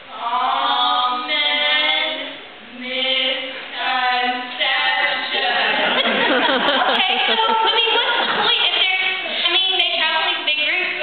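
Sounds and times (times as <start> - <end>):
women singing in unison: 0.2 - 6.1.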